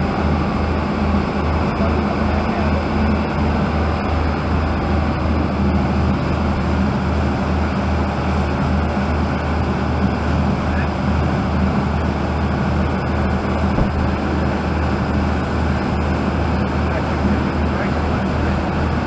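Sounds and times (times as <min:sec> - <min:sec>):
boat engine drone: 0:00.0 - 0:19.0
water rushing past hull: 0:09.2 - 0:19.0.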